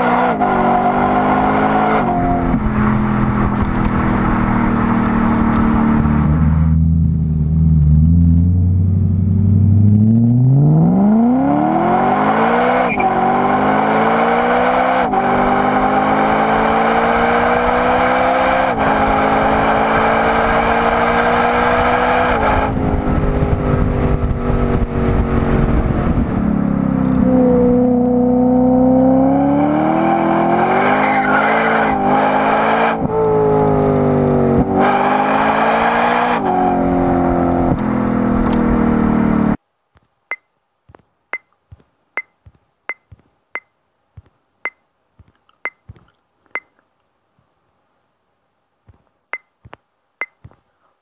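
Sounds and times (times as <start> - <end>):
car engine revving: 0.0 - 39.6
mobile game beeps: 41.3 - 41.5, 42.2 - 43.7, 45.6 - 45.9, 49.3 - 49.6, 50.2 - 50.5.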